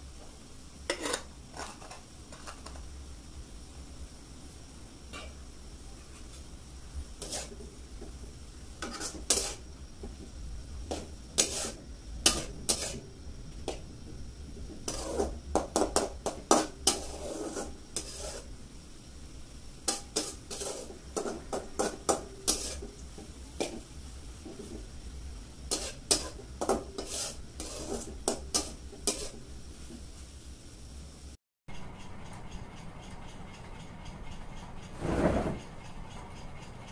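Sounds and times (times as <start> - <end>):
metal spatula scraping a pan: 0.9 - 2.8, 5.1 - 5.4, 7.2 - 8.1, 8.8 - 9.8, 10.9 - 13.8, 14.6 - 18.6, 19.8 - 23.8, 25.6 - 29.5, 34.9 - 35.7.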